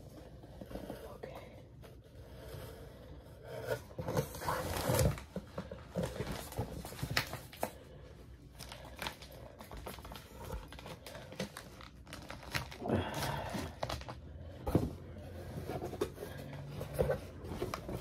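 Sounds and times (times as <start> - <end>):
packing peanuts and cardboard rustling: 3.9 - 7.9, 8.5 - 14.6.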